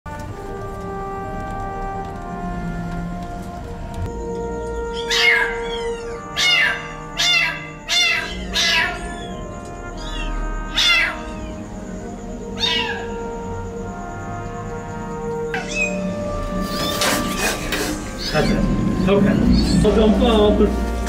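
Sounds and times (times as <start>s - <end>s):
background music: 0.1s - 21.0s
kitten meowing: 5.0s - 11.6s, 12.6s - 13.1s, 15.5s - 16.1s.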